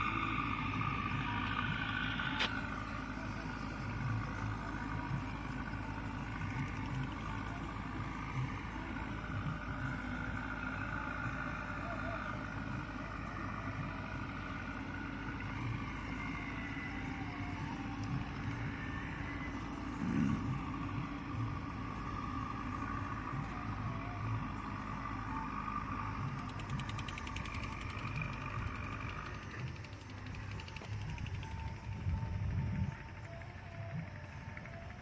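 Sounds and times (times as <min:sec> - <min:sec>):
diesel engine running: 0:00.0 - 0:35.0
steady whine: 0:00.0 - 0:35.0
fast even ticking: 0:26.3 - 0:32.2.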